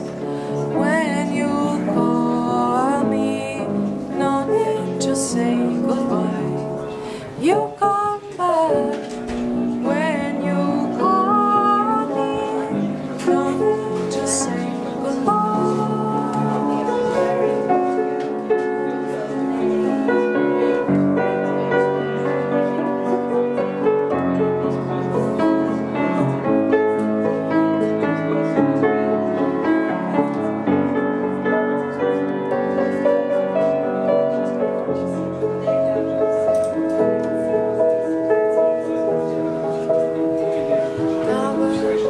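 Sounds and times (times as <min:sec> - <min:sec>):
piano melody over chords: 0:00.0 - 0:42.0.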